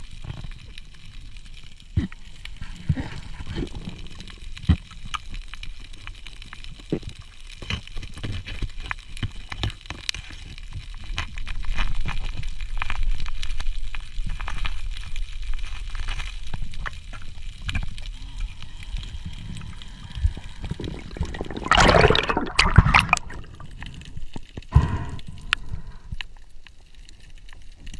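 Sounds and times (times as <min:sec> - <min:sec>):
low underwater rumble: 0:17.4 - 0:26.1
water splashing and gurgling: 0:17.5 - 0:25.9.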